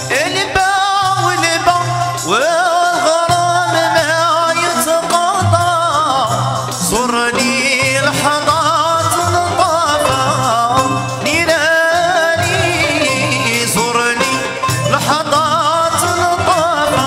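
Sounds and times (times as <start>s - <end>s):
man singing: 0.0s - 17.0s.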